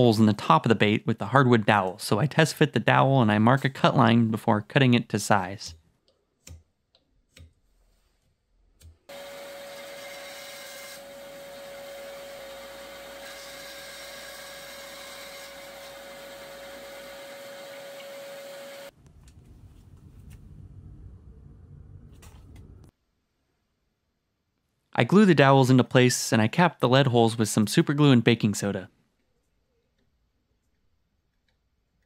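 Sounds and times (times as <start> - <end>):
bandsaw whine cutting wood: 9.1 - 18.9.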